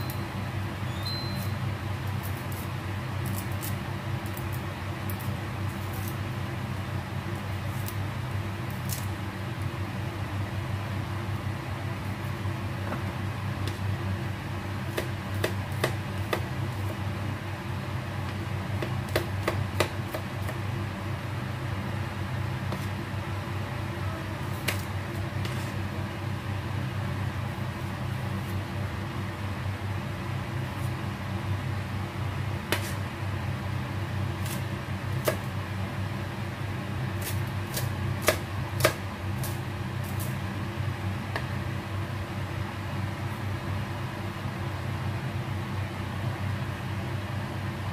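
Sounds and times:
steady low hum: 0:00.0 - 0:47.9
knife chopping on plastic board: 0:14.9 - 0:17.0, 0:18.3 - 0:20.6, 0:22.7 - 0:22.9, 0:24.5 - 0:25.7, 0:32.7 - 0:33.0, 0:35.2 - 0:35.5, 0:37.2 - 0:40.2.

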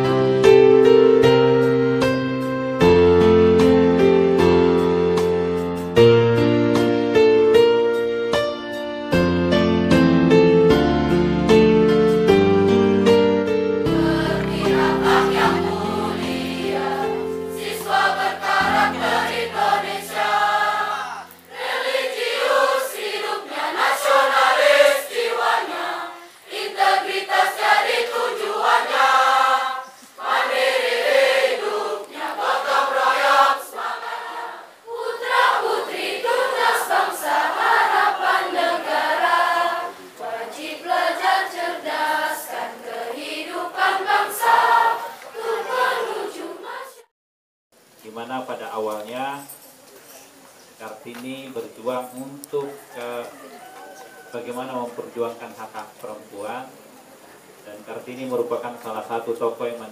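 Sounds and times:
low held accompaniment notes: 0:12.4 - 0:22.5
choir singing: 0:13.9 - 0:47.1.

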